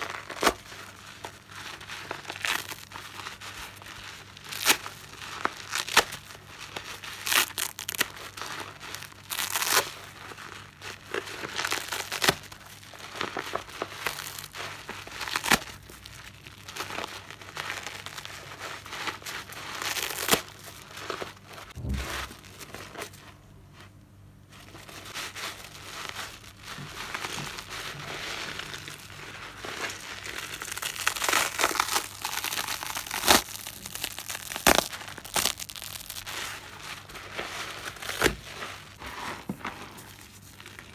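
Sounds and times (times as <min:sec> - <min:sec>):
wet sponge tearing and crackling: 0:00.0 - 0:23.4, 0:24.6 - 0:40.9.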